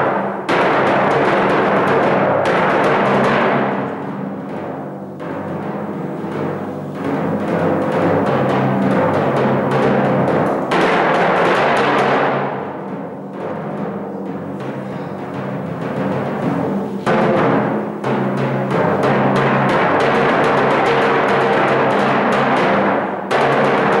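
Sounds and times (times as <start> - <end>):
timpani played with mallets: 0.0 - 24.0.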